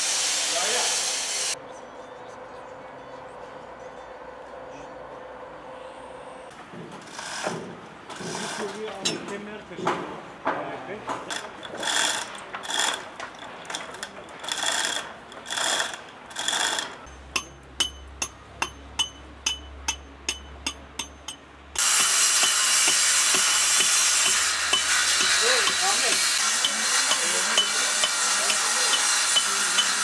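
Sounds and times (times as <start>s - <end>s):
rhythmic scraping strokes: 11.3s - 18.0s, 19.9s - 30.0s.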